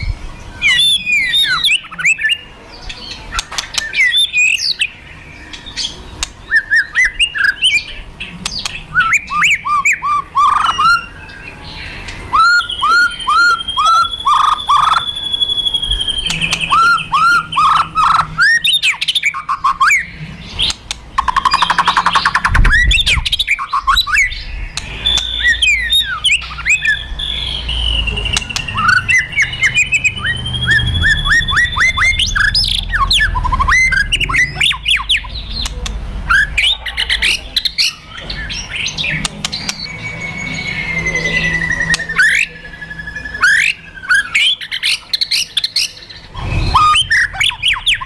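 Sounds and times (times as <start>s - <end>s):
bird singing with clicks and whistles: 0.0s - 48.0s
low rumble: 30.0s - 35.6s.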